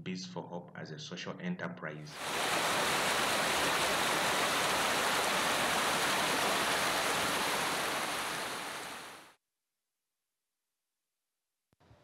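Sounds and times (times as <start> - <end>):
water rushing down waterfall: 2.2 - 9.3.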